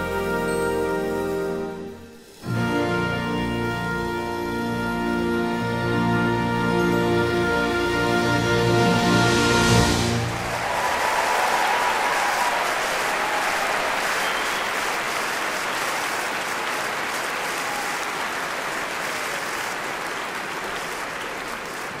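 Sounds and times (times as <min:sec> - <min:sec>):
crowd applauding: 0:09.8 - 0:22.0.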